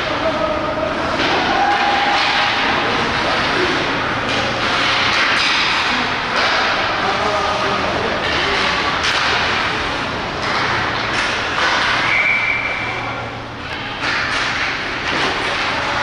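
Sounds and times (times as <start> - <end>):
hockey sticks and puck cracking: 1.0 - 7.1, 8.1 - 13.0, 13.6 - 16.0.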